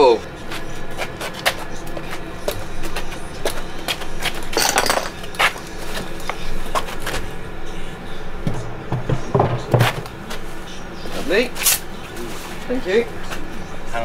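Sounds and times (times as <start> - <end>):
battery modules knocking and clunking: 8.4 - 10.1.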